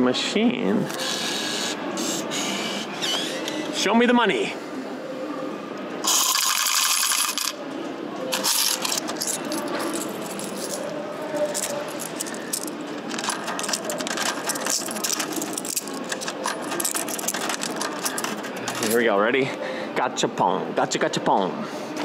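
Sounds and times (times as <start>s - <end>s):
coins clattering into metal tray: 6.0s - 7.6s, 8.3s - 19.0s
coins clinking and clicking: 6.0s - 7.6s, 8.3s - 19.1s.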